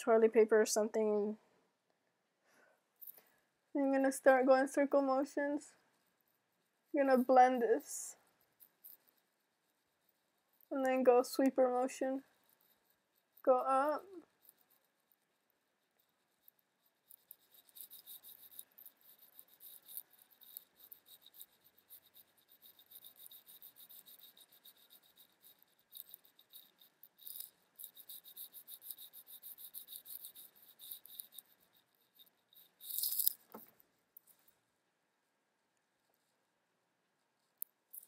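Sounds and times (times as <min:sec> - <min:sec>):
eyeshadow brush strokes on eyelid: 0:04.0 - 0:33.5.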